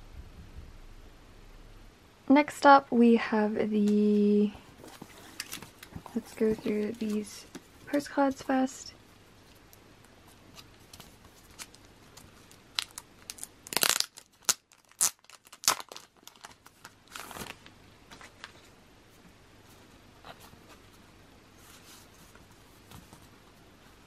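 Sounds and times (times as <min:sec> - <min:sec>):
plastic wrapping crinkling: 0:03.9 - 0:08.6, 0:10.5 - 0:18.7.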